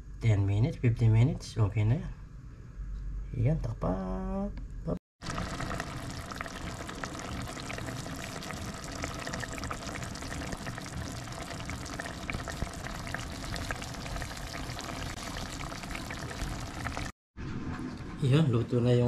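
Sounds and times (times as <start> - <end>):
pot simmering with bubbling hiss: 5.2 - 17.2.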